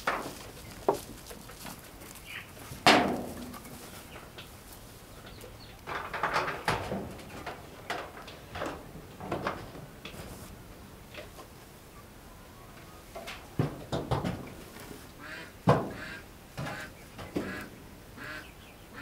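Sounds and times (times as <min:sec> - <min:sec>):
loud metal clank: 0:02.8 - 0:03.8.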